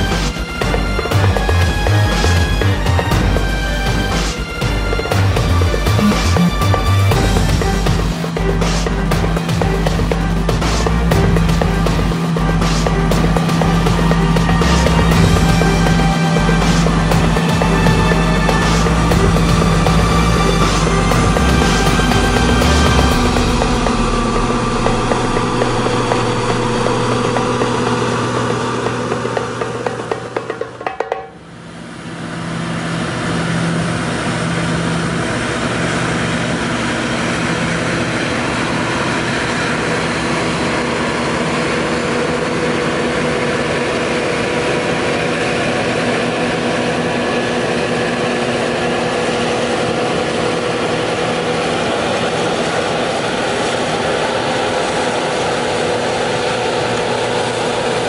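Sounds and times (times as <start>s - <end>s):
combine harvester droning: 0.0s - 58.0s.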